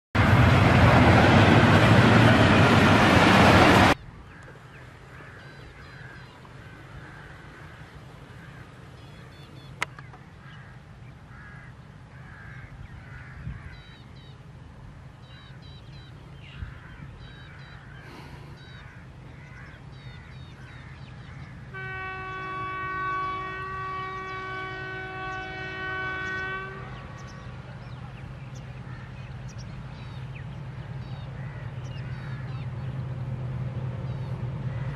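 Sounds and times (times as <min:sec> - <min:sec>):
train rumble: 0:00.2 - 0:12.2, 0:12.8 - 0:34.9
birds chirping: 0:01.7 - 0:34.9
locomotive air horn blast: 0:21.7 - 0:27.1.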